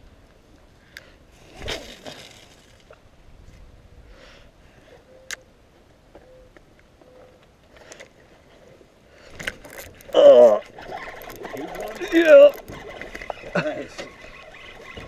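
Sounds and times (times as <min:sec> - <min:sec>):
fishing reel ticks and clicks: 0:09.4 - 0:15.0
person exclaiming: 0:10.1 - 0:10.6, 0:11.8 - 0:12.6.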